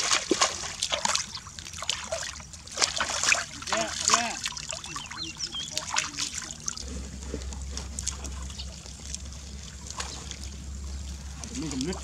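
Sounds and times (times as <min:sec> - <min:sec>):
water trickling and splashing: 0:00.0 - 0:12.0
steady low rumble: 0:04.7 - 0:12.0.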